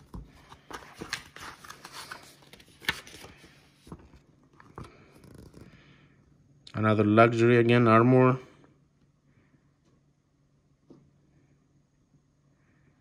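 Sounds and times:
paper pages rustling: 0.0 - 5.7.

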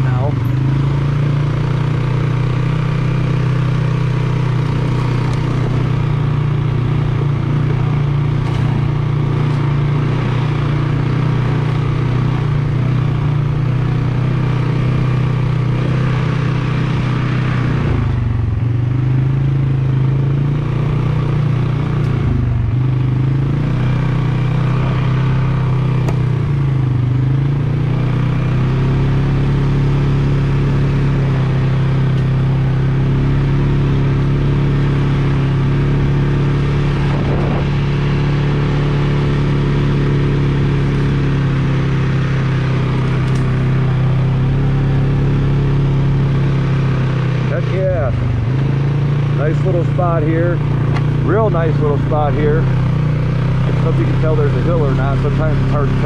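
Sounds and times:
off-road vehicle engine running: 0.0 - 56.0.

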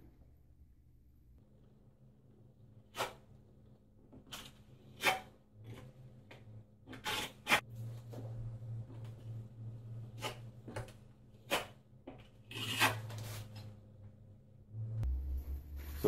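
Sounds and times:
trowel scraping mortar: 6.9 - 7.6, 11.4 - 13.6.

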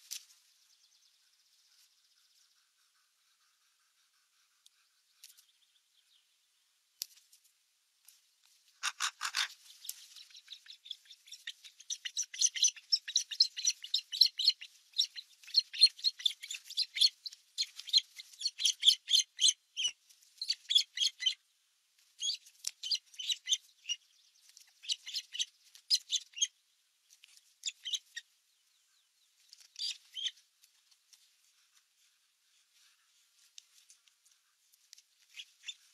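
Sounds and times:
nestlings chirping: 8.9 - 21.4, 22.0 - 31.7, 32.7 - 35.9.

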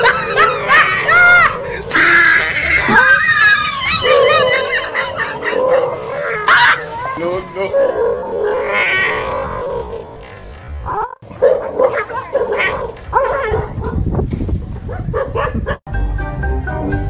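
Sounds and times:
dog barking and yelping: 0.0 - 10.0, 10.9 - 14.0, 14.9 - 15.8
music: 15.9 - 17.0.

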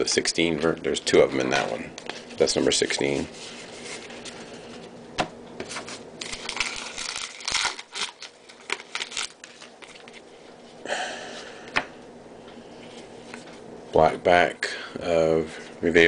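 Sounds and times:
wrapper crinkling: 5.7 - 10.3.

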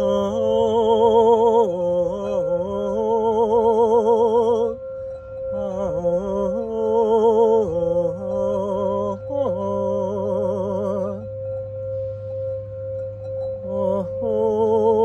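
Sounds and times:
woman singing wordless notes: 0.0 - 11.6, 13.6 - 15.0
singing bowl ringing tone: 0.0 - 15.0.

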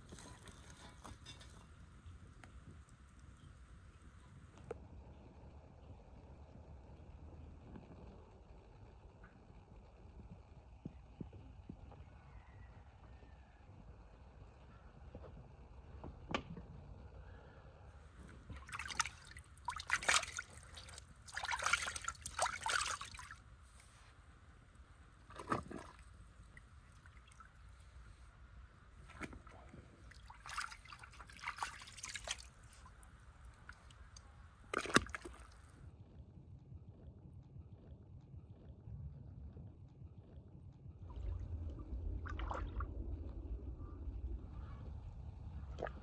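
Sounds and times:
hot water sloshing and splashing: 18.2 - 23.9, 25.2 - 28.2, 29.0 - 35.8, 41.0 - 43.2.

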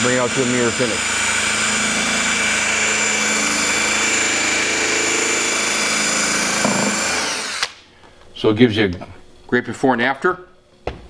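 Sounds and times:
cordless drill running: 0.0 - 7.8.

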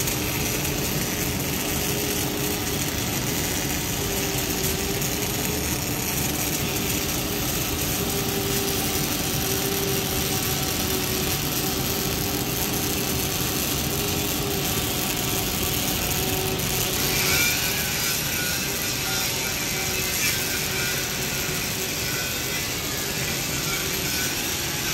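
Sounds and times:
steady machine hum: 0.0 - 18.8
welding arc crackling hiss: 0.0 - 24.9.

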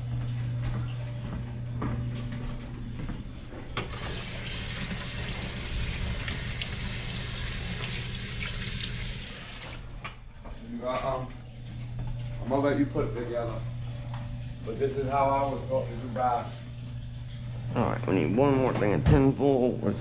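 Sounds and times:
low hum: 0.0 - 4.1
faucet water running: 3.8 - 9.9.

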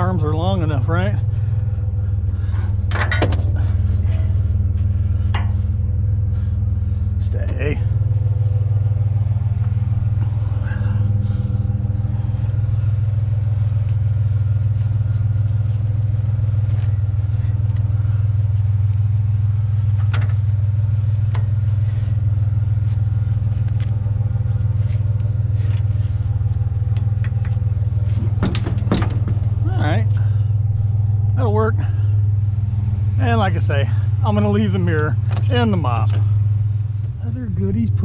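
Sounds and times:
truck engine idling: 0.0 - 38.0
metal scrap clicks and knocks: 2.9 - 3.6, 5.3 - 5.7, 20.0 - 20.5, 26.9 - 29.6.

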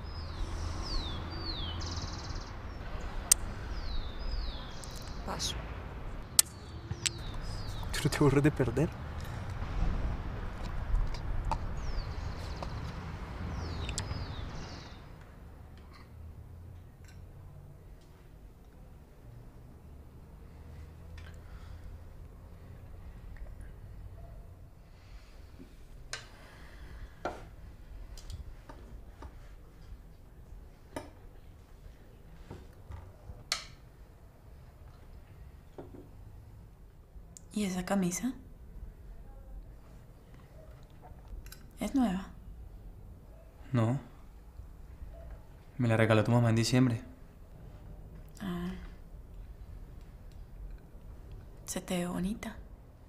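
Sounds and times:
birds chirping: 0.0 - 8.9, 11.5 - 15.2
low outdoor rumble: 0.0 - 53.0.

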